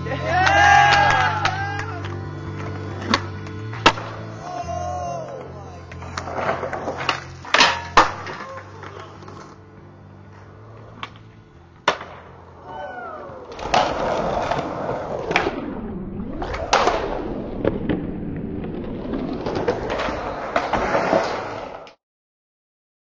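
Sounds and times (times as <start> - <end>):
skateboard wheels rolling on concrete: 0.0 - 22.0
skateboard landing clacks: 0.9 - 4.2, 5.9 - 9.5, 10.9 - 12.3
skateboard pops and slaps: 0.9 - 4.2, 5.9 - 9.4, 11.8 - 12.2.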